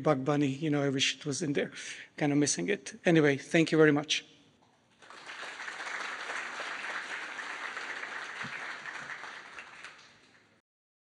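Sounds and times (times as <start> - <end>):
audience applauding: 5.0 - 10.6.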